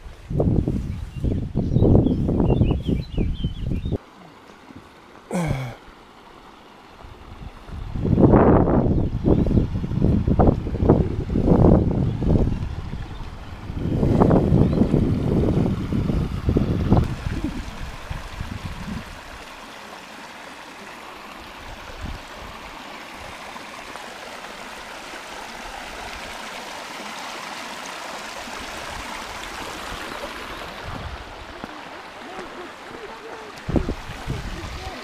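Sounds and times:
wind buffeting microphone: 0.0 - 4.0, 7.0 - 19.5, 28.8 - 35.0
stream rushing over stones: 3.9 - 35.0.

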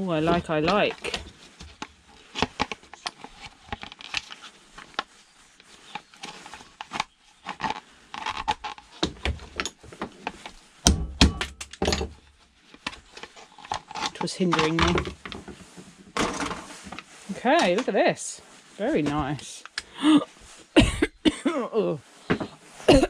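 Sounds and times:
clicks and scrapes of plastic and metal: 0.1 - 10.6, 11.5 - 18.0.

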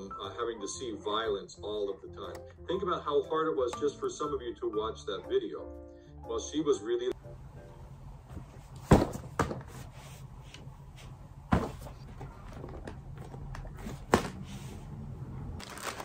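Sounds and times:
fabric and bags rustling: 15.6 - 16.0.

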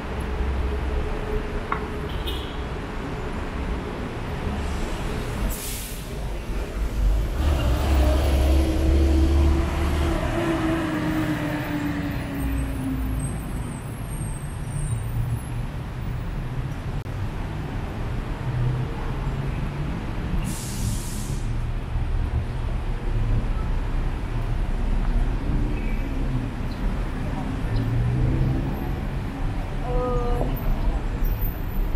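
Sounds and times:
city road traffic: 0.0 - 31.9
heavy vehicle passing: 4.5 - 13.6
short hiss: 20.4 - 21.5.

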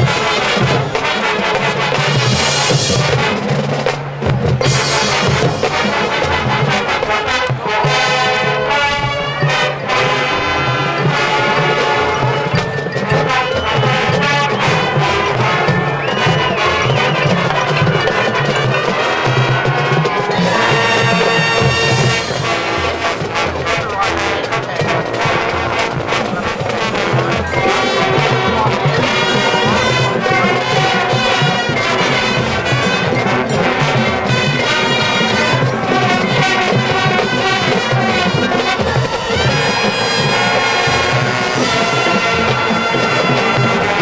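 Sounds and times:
brass band chords: 0.0 - 44.0
marching drum line beat: 0.0 - 44.0.

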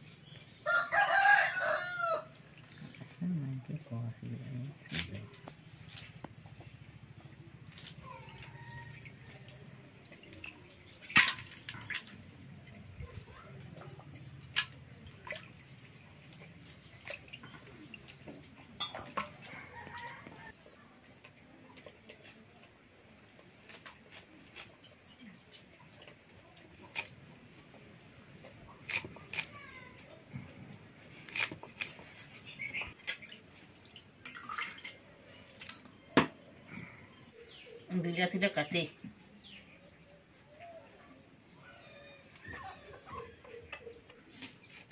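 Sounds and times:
water splashes and drips: 2.3 - 6.4, 7.6 - 20.6, 31.3 - 36.0.

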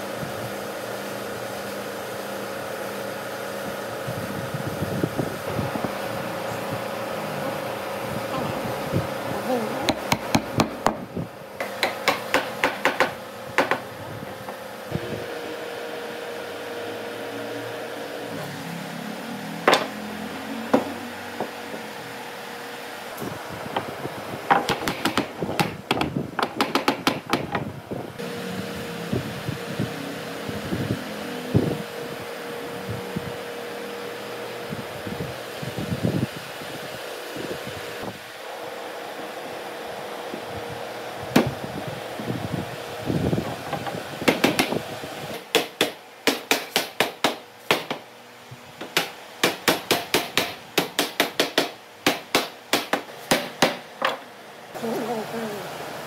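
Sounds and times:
steady hum: 0.0 - 56.0
mallet knocking wooden joints: 11.6 - 13.8, 24.5 - 27.6.

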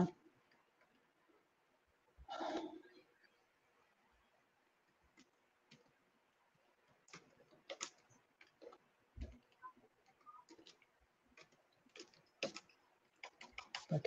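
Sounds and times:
typing on computer keyboard: 7.0 - 14.0.

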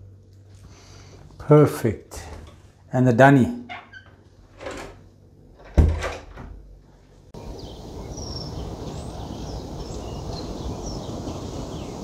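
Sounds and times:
door shutting with a thud: 5.6 - 6.6
small birds chirping: 7.4 - 12.0
wind on microphone: 7.4 - 12.0.

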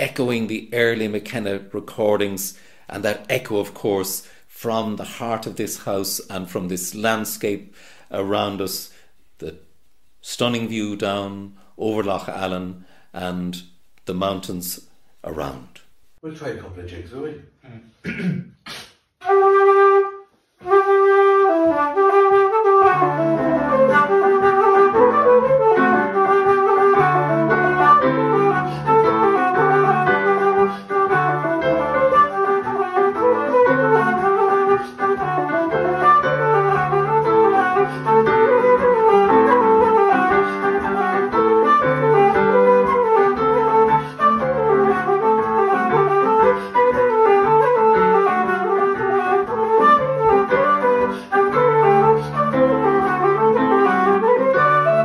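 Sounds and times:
wooden flute playing jigs: 19.2 - 55.0
piano chords: 21.1 - 55.0.

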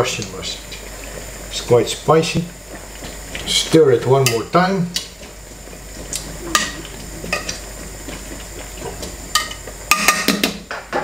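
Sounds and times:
spoon scraping and knocking pot: 8.9 - 11.0.

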